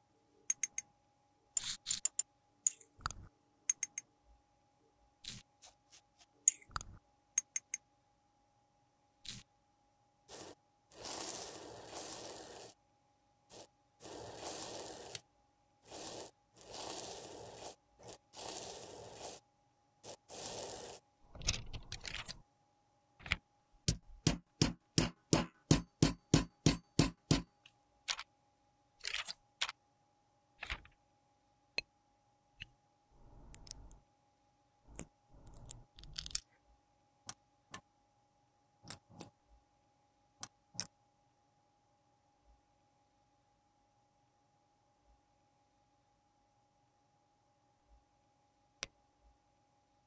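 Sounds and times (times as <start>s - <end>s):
metal spatula scraping powder: 10.3s - 12.8s, 13.5s - 15.2s, 15.8s - 19.4s, 20.0s - 22.4s
soft rubs: 10.3s - 12.8s, 13.5s - 15.2s, 15.8s - 19.4s, 20.0s - 21.1s.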